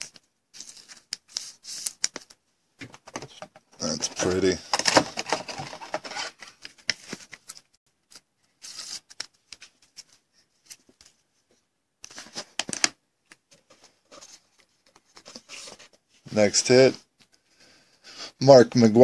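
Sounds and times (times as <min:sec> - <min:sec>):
hands handling trading card: 0:00.0 - 0:11.2.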